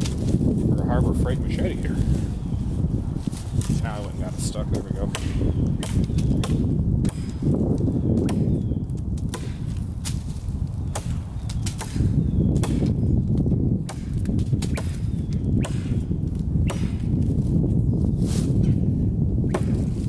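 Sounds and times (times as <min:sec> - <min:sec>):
machete chopping tree trunk: 0:04.7 - 0:17.4, 0:19.4 - 0:20.0.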